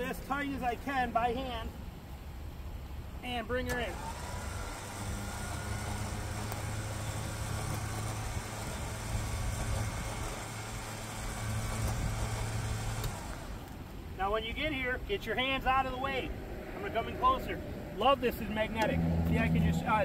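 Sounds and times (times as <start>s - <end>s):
electric winch motor running: 3.8s - 13.8s.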